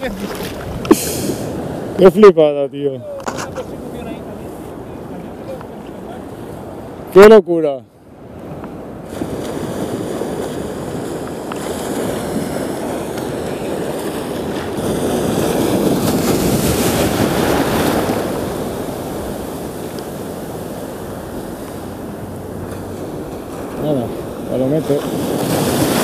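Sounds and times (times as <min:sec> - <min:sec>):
wind on microphone: 0:00.0 - 0:02.1, 0:08.0 - 0:26.0
small waves breaking on shore: 0:00.0 - 0:26.0.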